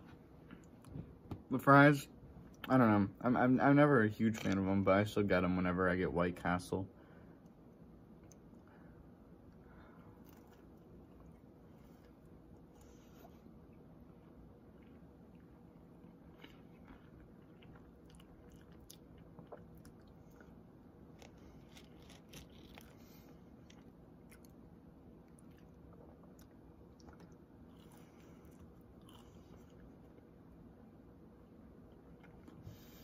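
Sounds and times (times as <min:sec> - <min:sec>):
low room hum: 0:00.0 - 0:33.0
chewing french fries: 0:09.4 - 0:30.6, 0:31.8 - 0:33.0.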